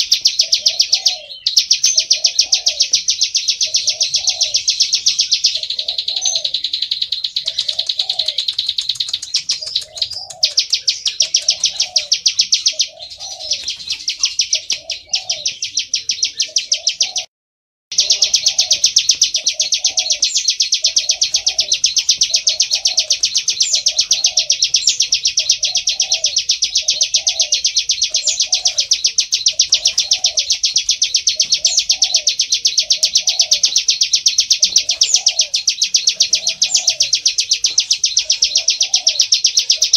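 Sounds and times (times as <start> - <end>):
bird rapid high trill: 0.0 - 17.3, 17.9 - 39.9.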